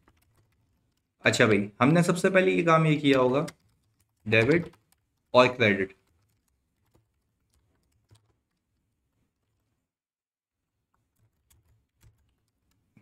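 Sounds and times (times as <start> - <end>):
computer keyboard keystrokes: 0.0 - 1.2, 2.8 - 8.8, 10.9 - 13.0.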